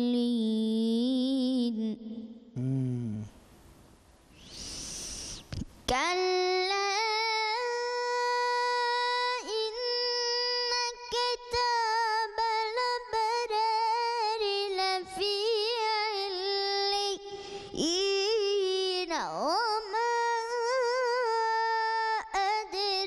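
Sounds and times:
boy reciting melodically: 0.0s - 3.4s, 4.4s - 23.0s.

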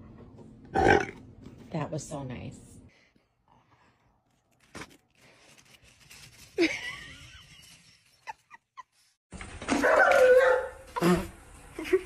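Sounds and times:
person laughing wheezily: 6.5s - 9.0s.

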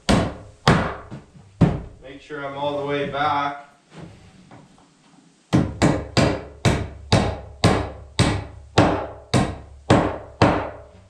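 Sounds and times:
hammer driving nail into wood: 5.5s - 10.8s.

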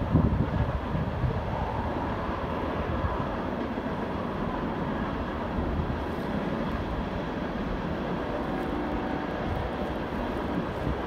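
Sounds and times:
train wheels rumbling on rails: 0.0s - 11.0s.

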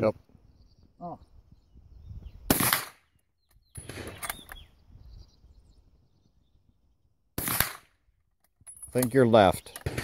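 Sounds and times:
rifle shot: 2.5s - 3.0s, 3.8s - 4.5s, 7.4s - 8.0s, 9.8s - 10.0s
rifle bolt clicking and rattling: 3.4s - 4.6s, 8.2s - 10.0s.

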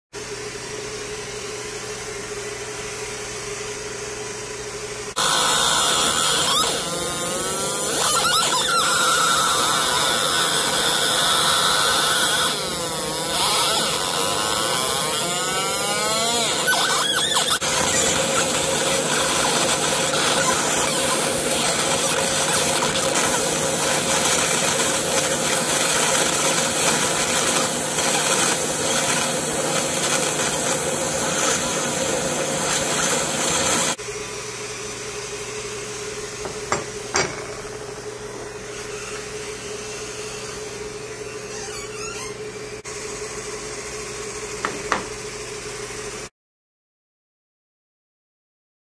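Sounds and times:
laser engraver whine: 5.1s - 34.0s.

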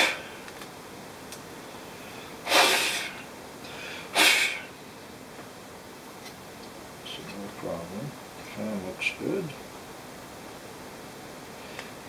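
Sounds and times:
puffs of breath blowing: 0.0s - 0.5s, 1.8s - 4.8s.

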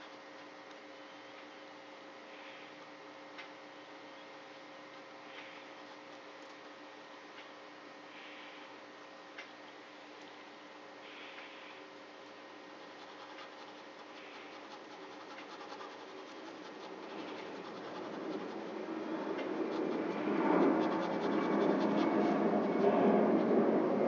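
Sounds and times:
pen scratching on paper: 12.8s - 23.4s
broad rushing noise: 13.0s - 24.0s.

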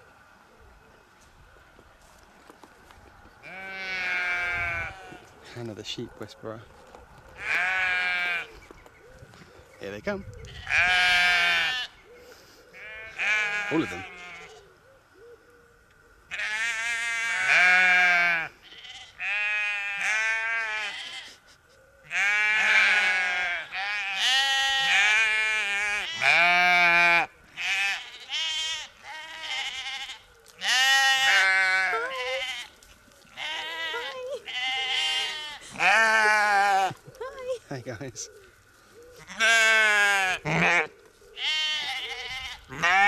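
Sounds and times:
sheep bleating: 3.4s - 5.3s, 7.4s - 8.5s, 10.5s - 12.0s, 12.8s - 14.6s, 16.3s - 21.4s, 22.1s - 37.6s, 39.2s - 43.0s.

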